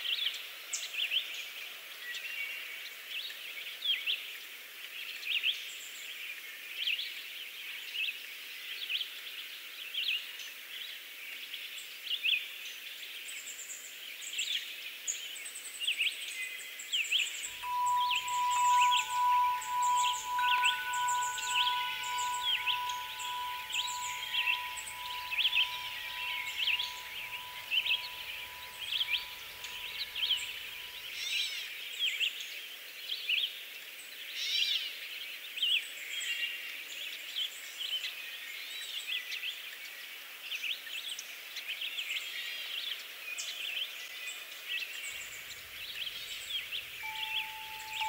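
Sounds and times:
birds chirping: 17.6s - 31.0s, 46.2s - 48.0s
steady high tone: 17.6s - 31.0s, 47.0s - 48.0s.

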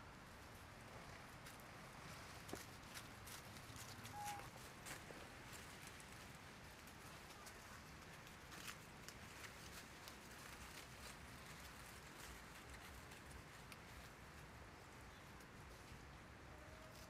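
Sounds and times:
faint outdoor hiss: 0.0s - 17.0s.

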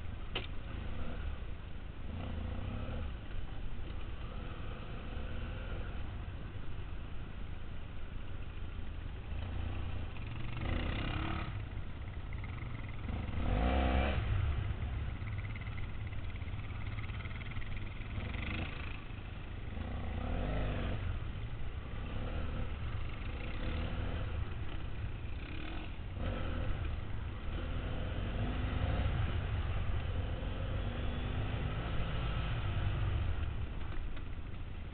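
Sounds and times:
motorcycle engine revving: 9.4s - 34.3s.

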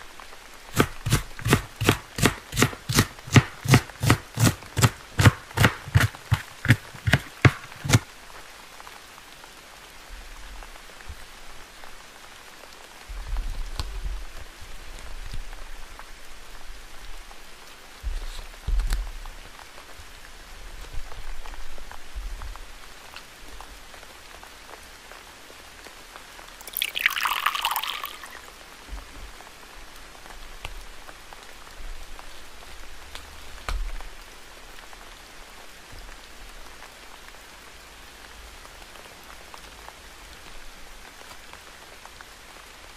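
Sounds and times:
paper handling sounds: 0.7s - 8.1s.

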